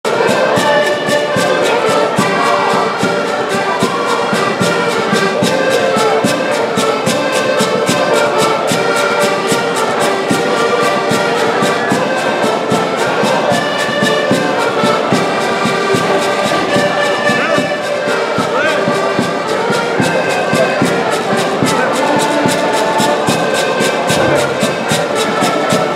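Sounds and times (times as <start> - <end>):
button accordions playing: 0.0 - 25.9.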